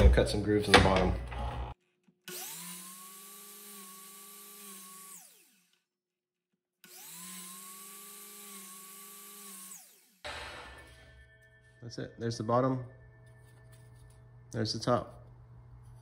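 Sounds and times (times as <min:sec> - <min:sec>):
miter saw cutting wood: 0:01.4 - 0:05.7, 0:06.8 - 0:11.0.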